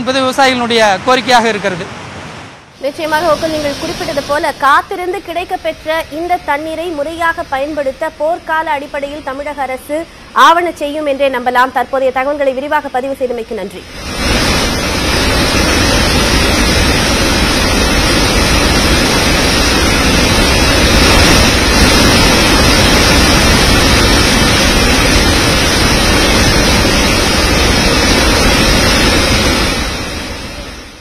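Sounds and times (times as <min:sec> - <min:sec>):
water rushing over rocks: 0:13.9 - 0:31.0.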